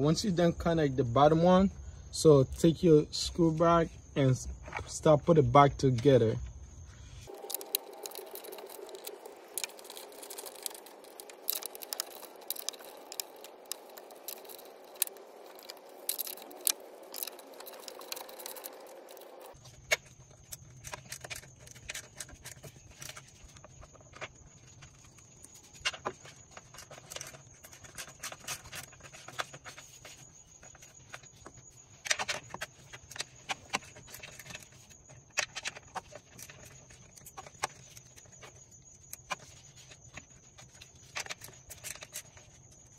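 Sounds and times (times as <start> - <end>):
low hum: 7.0 - 19.6.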